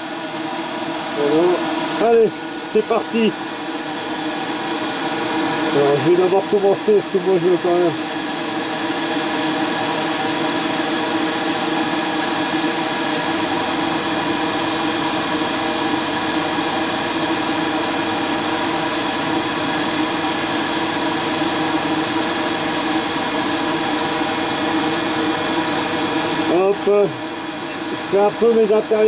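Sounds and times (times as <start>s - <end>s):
extractor fan humming: 0.0s - 29.0s
airbrush spraying in hissing bursts: 7.9s - 13.6s, 14.6s - 23.7s, 27.8s - 29.0s.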